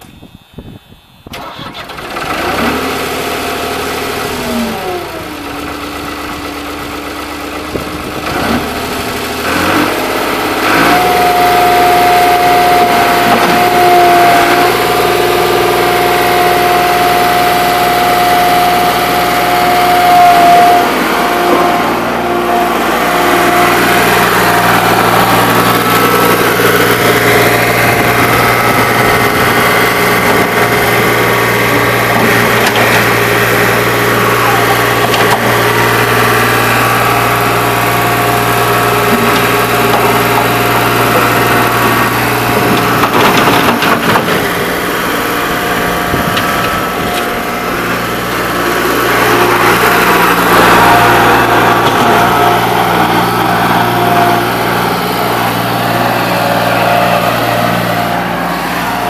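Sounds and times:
skid steer diesel engine running: 0:00.0 - 0:59.0
rattling and scraping: 0:18.8 - 0:36.1, 0:38.7 - 0:58.4.

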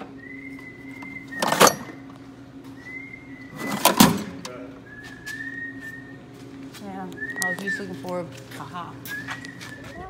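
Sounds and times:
person whistling: 0:00.1 - 0:01.6, 0:02.8 - 0:03.9, 0:04.8 - 0:06.2, 0:09.0 - 0:10.0.

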